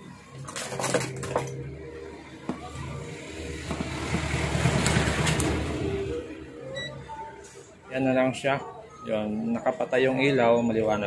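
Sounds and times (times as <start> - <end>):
vehicle engine rumbling: 0.0 - 7.9.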